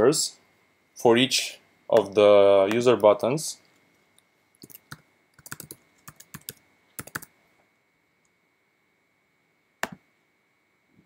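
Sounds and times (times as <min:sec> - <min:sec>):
typing on computer keyboard: 0:04.6 - 0:07.3.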